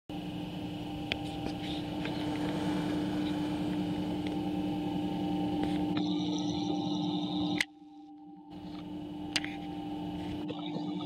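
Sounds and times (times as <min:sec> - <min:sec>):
grinder motors humming: 0:00.1 - 0:07.6.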